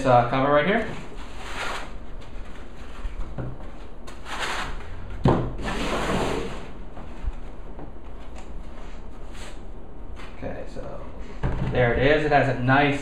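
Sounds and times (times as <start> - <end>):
foam scraping against cardboard: 5.6 - 6.7.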